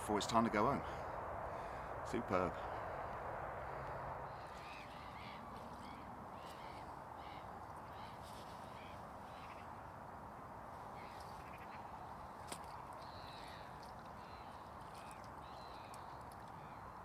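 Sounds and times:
steady outdoor hiss: 0.0 - 17.0
short repeated bird calls: 3.7 - 9.8, 10.8 - 17.0.

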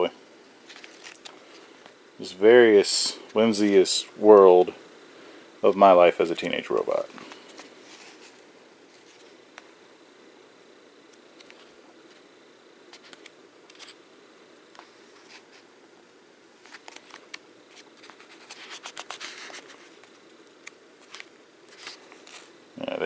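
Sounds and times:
low background hum: 0.0 - 23.0
paper pages rustling and flicking: 0.6 - 1.9, 12.9 - 14.0, 16.6 - 20.2, 21.0 - 22.6.

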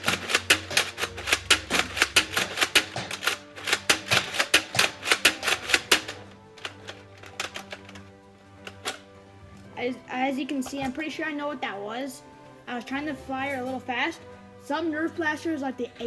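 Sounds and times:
rapid plastic clacks: 0.0 - 9.7
background music: 0.0 - 16.0.

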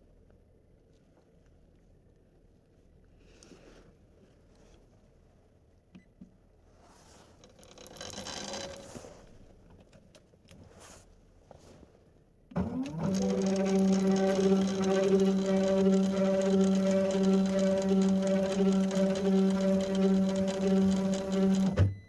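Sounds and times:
reel whirring: 7.4 - 9.4, 12.6 - 21.9
motor whine and hum: 12.5 - 22.0.

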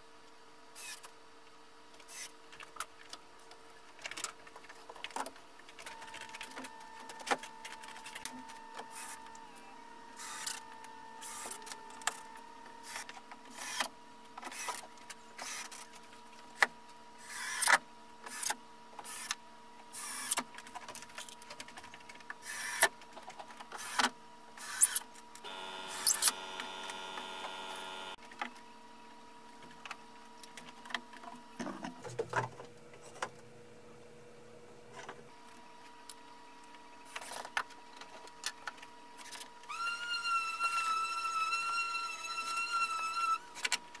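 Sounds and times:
small electric motor buzzing: 24.6 - 28.2
electrical hum: 25.4 - 30.8.

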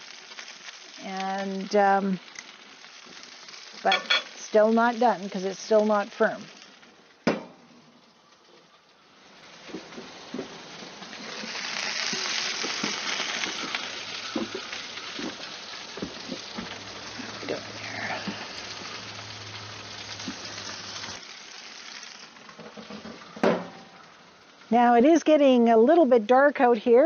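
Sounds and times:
chicken sizzling on a grill: 0.0 - 27.0
sharp knock: 7.3 - 7.6.

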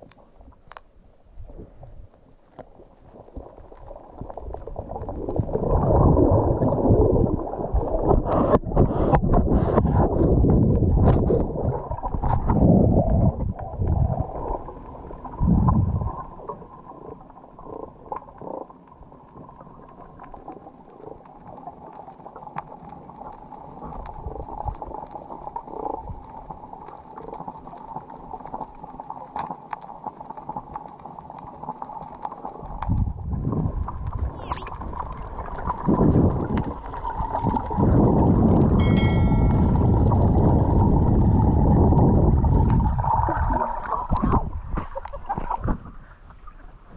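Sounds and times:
muffled underwater rumble: 0.0 - 46.9
faint clicks: 37.3 - 37.7.

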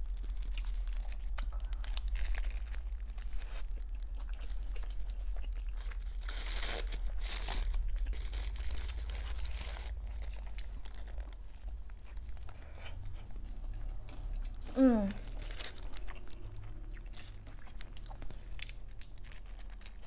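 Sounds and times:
paper wrapper crinkling: 0.0 - 5.1, 5.8 - 12.9, 15.1 - 16.4, 18.2 - 20.0
crunchy chewing: 0.0 - 20.0
low hum: 0.0 - 20.0.

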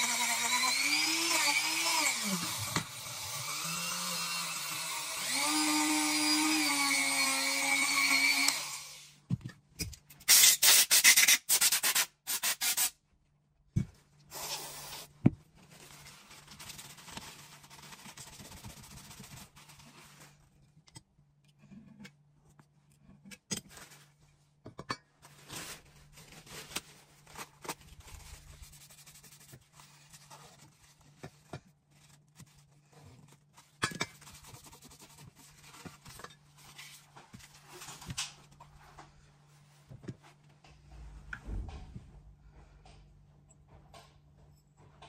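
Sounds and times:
paper towel rustling: 25.2 - 31.0.

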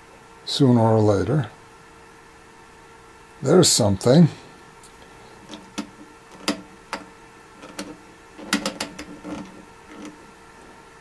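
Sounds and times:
faint steady hum: 0.0 - 11.0
knobs and switches clicking: 5.4 - 10.2.

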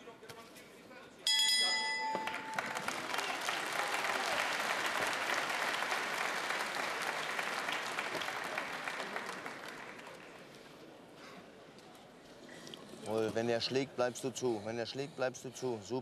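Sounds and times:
crowd applauding: 2.1 - 10.6.

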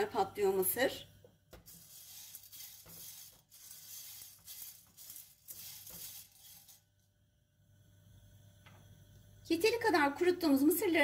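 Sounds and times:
popcorn kernels rattling in a pan: 1.6 - 6.9
spatula stirring kernels: 1.6 - 6.9.

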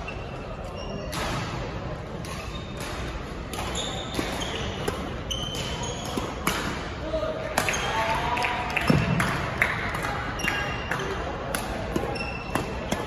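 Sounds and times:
echoing sports hall noise: 0.0 - 13.0
racket hitting shuttlecock: 2.2 - 6.9, 11.5 - 13.0
sneakers squeaking on wooden floor: 2.3 - 2.9, 3.6 - 6.4, 12.0 - 13.0.

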